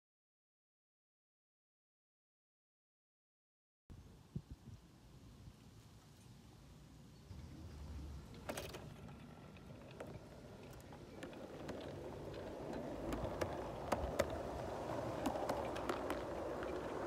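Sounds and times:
model train rumbling on track: 7.2 - 17.0
wheel clicks on track: 8.2 - 17.0.

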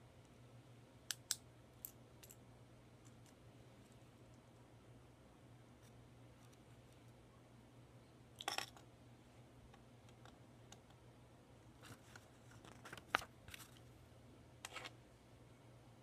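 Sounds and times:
plastic bricks handled: 11.8 - 13.8.

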